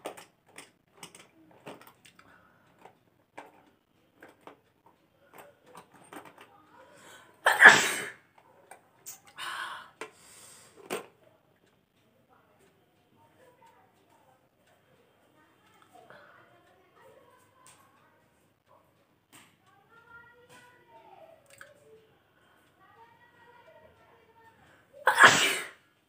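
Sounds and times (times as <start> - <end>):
woman sneezing: 7.4 - 8.2, 25.0 - 25.8
breathy bursts: 9.4 - 10.8.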